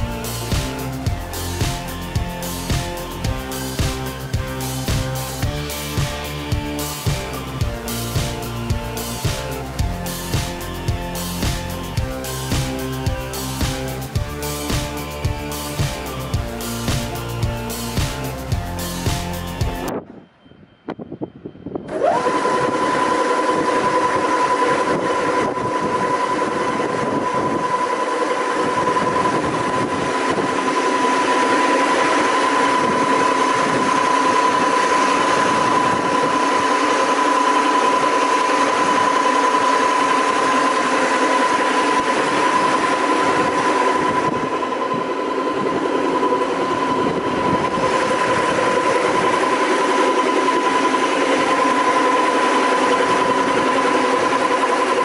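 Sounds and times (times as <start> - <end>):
sanding machine high whine: 0.0 - 20.0, 21.7 - 55.0
constant rushing noise: 21.7 - 55.0.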